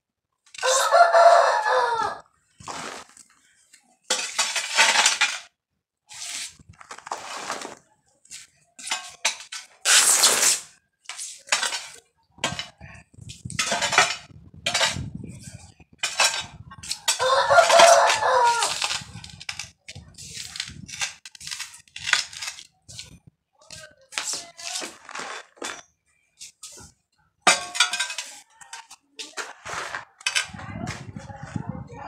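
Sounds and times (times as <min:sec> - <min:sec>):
rooster crowing: 0:00.6 - 0:02.3, 0:17.1 - 0:18.8
hoe scraping soil on tiles: 0:02.5 - 0:05.5, 0:06.1 - 0:27.0, 0:27.7 - 0:31.1.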